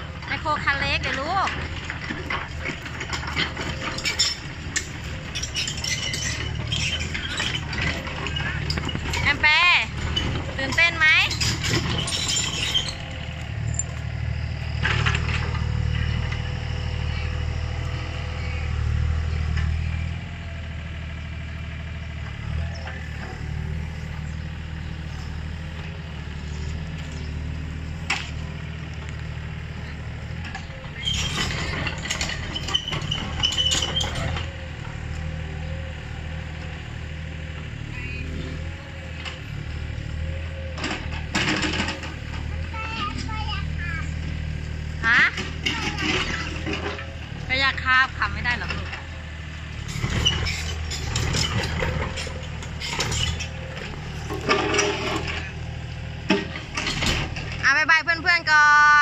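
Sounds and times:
excavator diesel engine running: 0.0s - 59.0s
metallic clanks and clattering: 0.2s - 16.7s, 26.6s - 35.3s, 40.8s - 43.4s, 45.0s - 57.8s.

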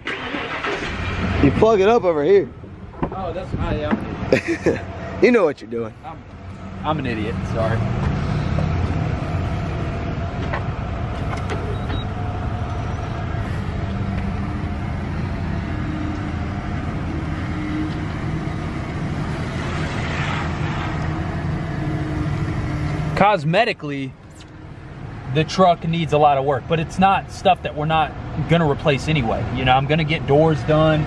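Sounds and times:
vehicle engine idling: 4.4s - 19.5s.

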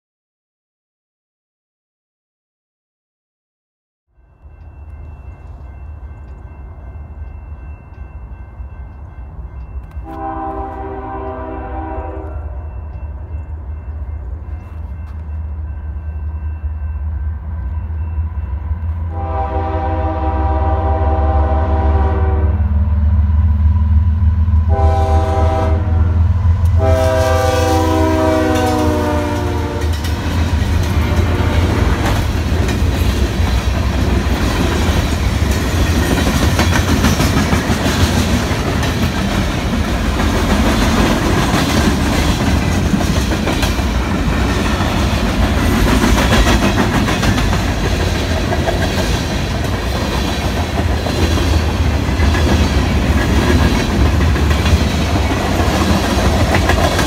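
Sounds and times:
diesel locomotive engine rumble: 4.2s - 57.0s
train air horn blasts: 10.0s - 12.9s, 19.1s - 22.8s, 24.6s - 30.0s.

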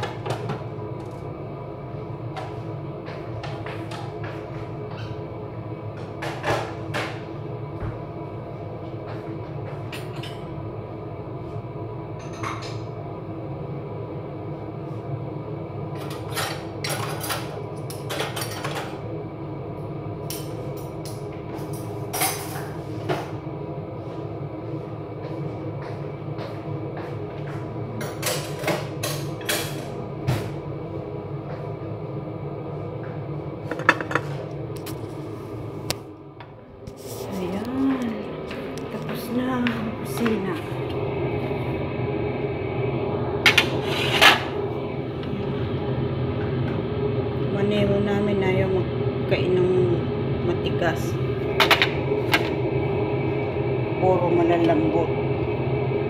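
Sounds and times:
steady hum: 0.0s - 56.0s
pots and utensils clattering: 16.0s - 19.0s, 33.7s - 34.4s.

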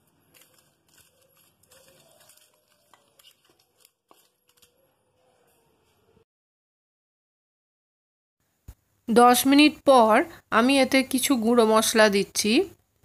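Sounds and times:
hand mixing raw chicken: 0.0s - 5.6s.

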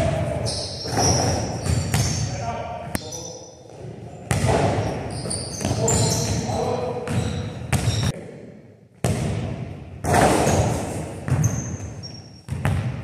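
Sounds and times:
sneakers squeaking on floor: 0.0s - 8.2s, 10.1s - 13.0s
basketball bouncing on hardwood floor: 4.3s - 4.8s, 7.1s - 8.1s, 12.5s - 13.0s.

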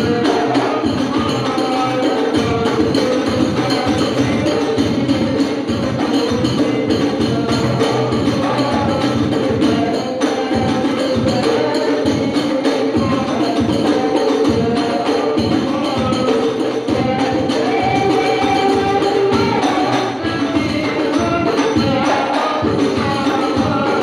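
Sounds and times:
frame drums playing rhythm: 0.0s - 24.0s.

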